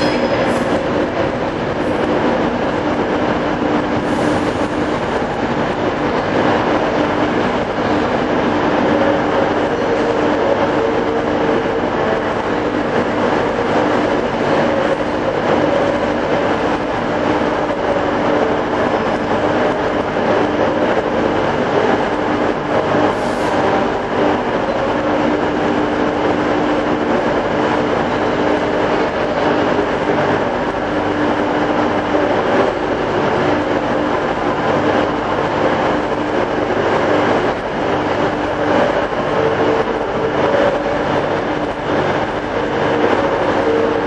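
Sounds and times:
train wheels rumbling on rails: 0.0s - 44.0s.

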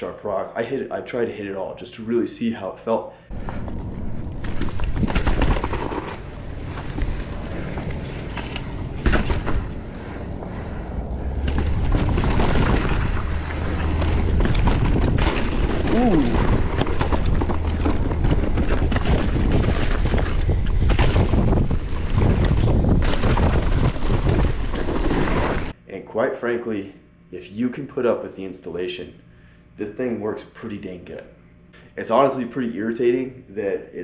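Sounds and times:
wind buffeting microphone: 3.3s - 25.0s
bike tyres rumbling over rocks: 3.3s - 25.7s
bike landing knocks: 4.4s - 24.9s.

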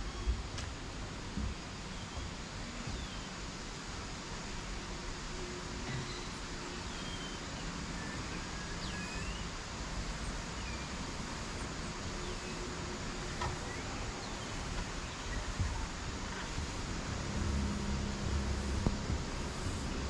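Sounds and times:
outdoor background hiss: 0.0s - 20.0s
low rumble: 14.6s - 20.0s.

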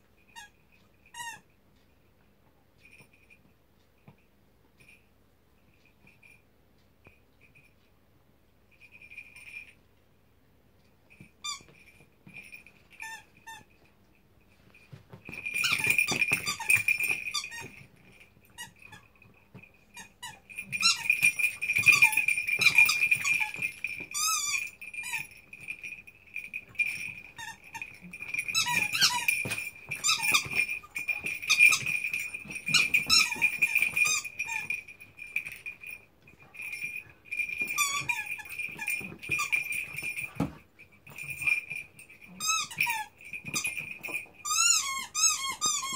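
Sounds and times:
dog chewing squeaky toy: 0.3s - 1.5s, 11.1s - 13.8s, 15.2s - 45.9s
rapid high squeaks: 26.7s - 40.4s.

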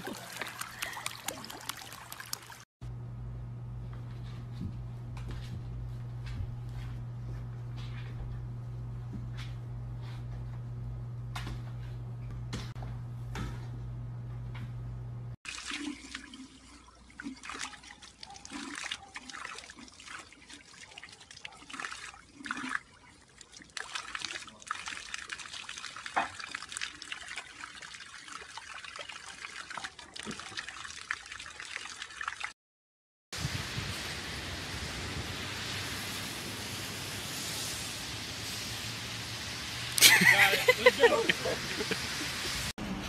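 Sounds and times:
dog splashing in water: 0.0s - 2.7s
fountain water trickling: 0.0s - 2.7s, 33.6s - 42.6s.

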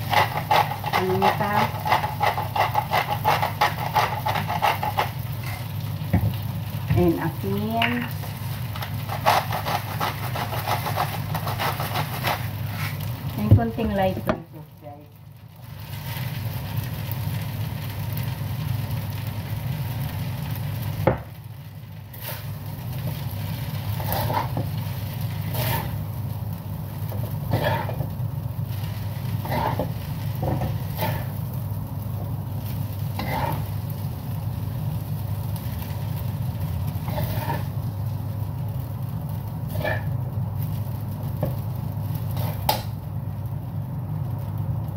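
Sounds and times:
spatula scraping a wok: 0.0s - 5.8s, 8.0s - 13.1s, 22.1s - 31.5s, 32.6s - 34.0s, 36.9s - 37.9s, 39.7s - 40.2s, 42.2s - 42.8s
noodles sizzling in a wok: 0.0s - 44.9s
steady low hum: 16.7s - 44.9s.

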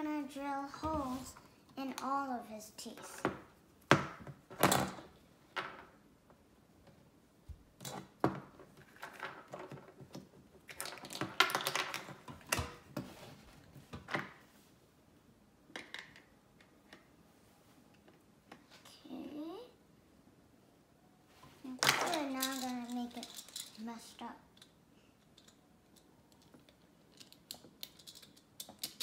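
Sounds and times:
plastic toy pieces clicking: 21.9s - 23.8s, 24.6s - 29.0s.

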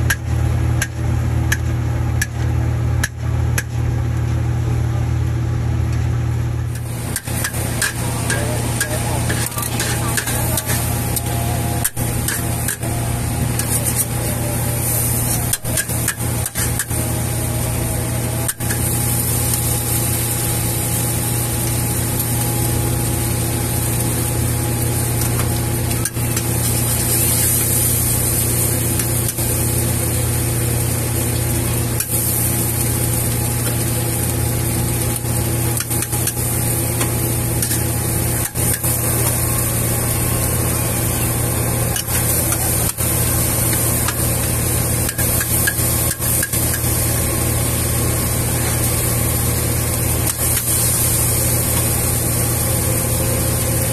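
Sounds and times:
burner roar: 6.6s - 53.9s
noodles sizzling in wok: 6.7s - 53.9s
metal spatula scraping wok: 6.8s - 17.4s.

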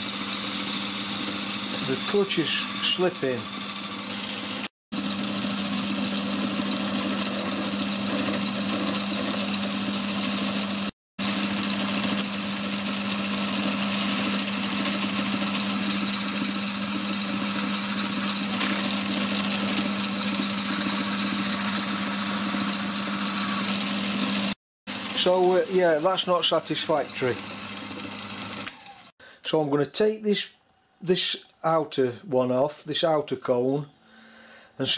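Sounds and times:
lathe humming: 0.5s - 26.1s.

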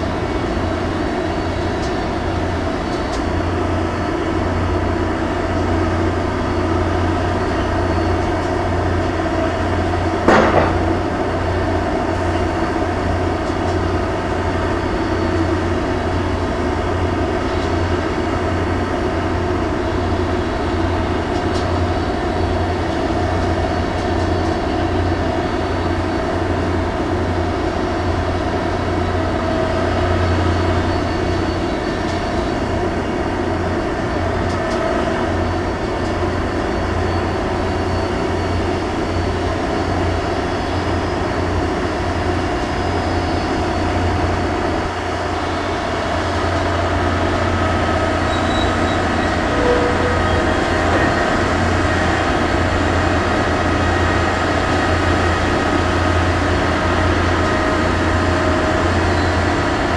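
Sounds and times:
heavy machinery drone: 0.0s - 59.9s
sharp bang: 10.3s - 11.1s.

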